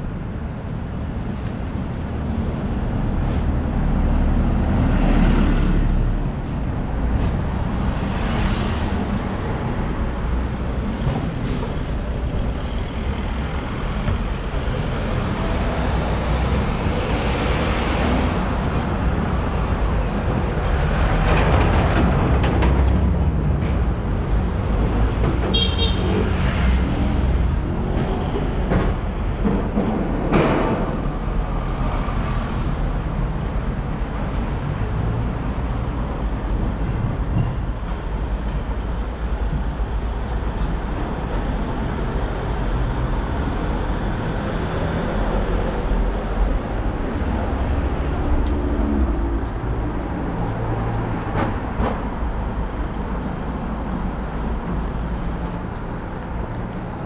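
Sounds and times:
road traffic rumble: 0.0s - 57.0s
loud vehicle passing: 13.0s - 25.3s.

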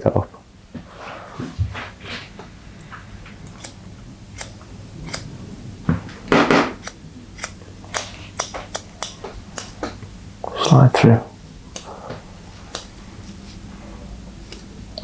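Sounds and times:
scissors snipping wet hair: 11.7s - 11.9s
rustle of hair and tools: 11.8s - 14.8s.

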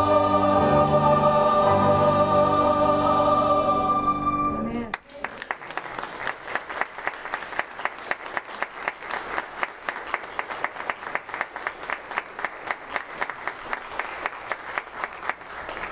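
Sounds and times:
congregation applauding: 4.8s - 15.9s.

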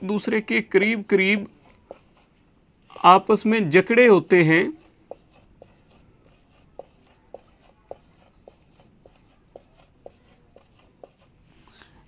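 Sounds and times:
marker pen squeaks: 4.8s - 11.3s.

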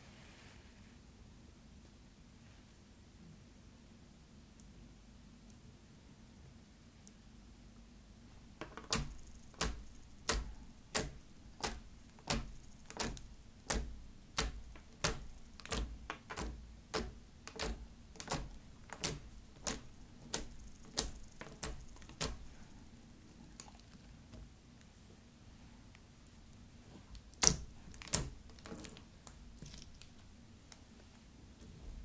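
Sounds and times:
fingernails clicking on wooden table: 8.6s - 22.8s, 27.2s - 30.2s.

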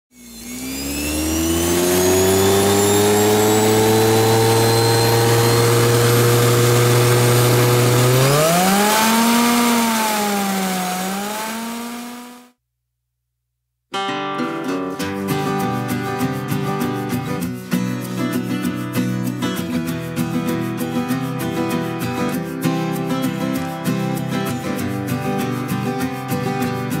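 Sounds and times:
washing machine motor whining: 0.1s - 12.5s.

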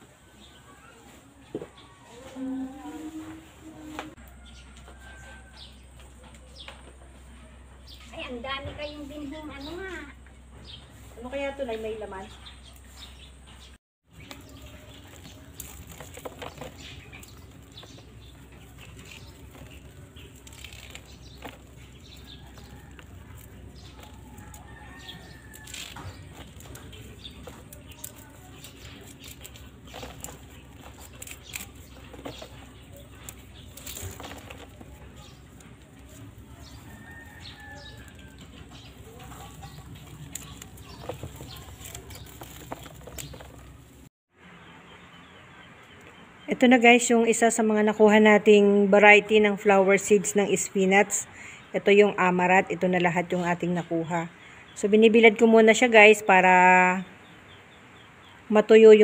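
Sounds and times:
dry seed heads rustling and crackling: 14.0s - 44.1s.

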